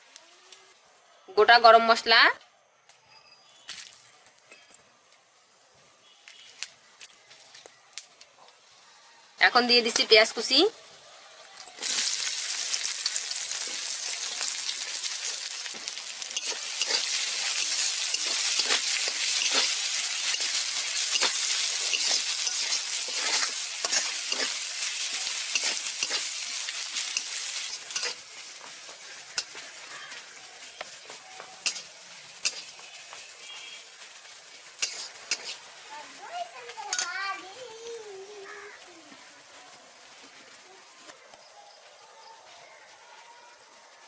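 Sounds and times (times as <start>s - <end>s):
onions sizzling in hot oil: 0.0s - 0.8s, 5.3s - 41.2s
spatula scraping pan: 15.2s - 28.3s, 34.8s - 35.7s.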